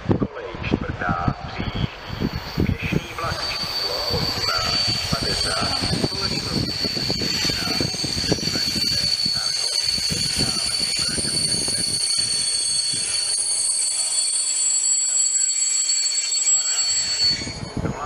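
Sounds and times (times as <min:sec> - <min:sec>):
train wheels rumbling on rails: 0:02.0 - 0:18.0
train brakes squealing: 0:02.1 - 0:18.0.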